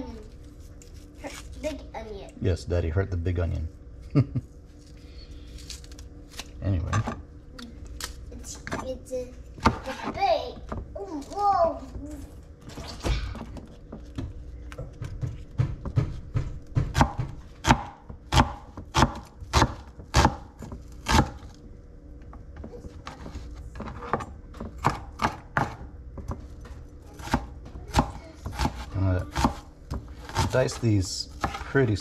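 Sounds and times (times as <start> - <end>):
knife chopping on cutting board: 14.9 - 21.4, 23.8 - 26.4, 27.2 - 31.8.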